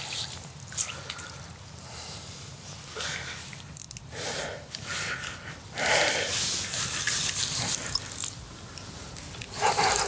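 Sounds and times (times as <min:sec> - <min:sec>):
person breathing and sniffing: 0:04.2 - 0:07.0.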